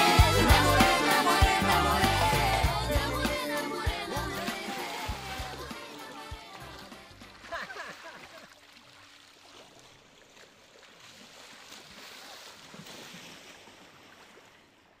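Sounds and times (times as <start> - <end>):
water splashing from wading: 6.4 - 15.0.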